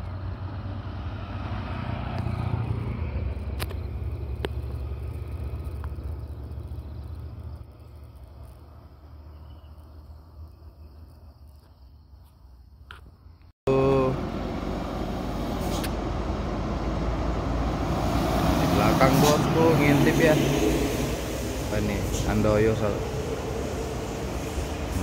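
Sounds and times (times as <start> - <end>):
vehicle driving past: 0.0 - 9.9, 13.7 - 25.0.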